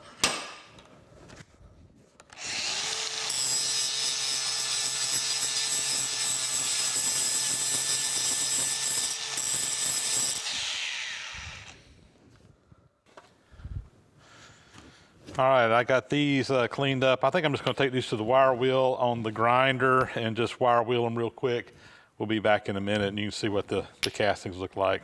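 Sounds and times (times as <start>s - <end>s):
angle grinder grinding metal: 2.3s - 11.9s.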